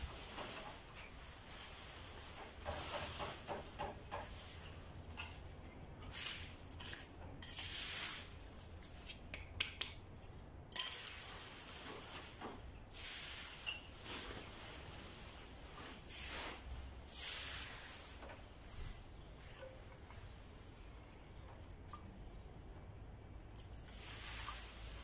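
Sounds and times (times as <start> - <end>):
dry leaves rustling: 0.0 - 3.1, 6.1 - 8.8, 13.0 - 21.9
plastic bag crackling: 13.4 - 19.5.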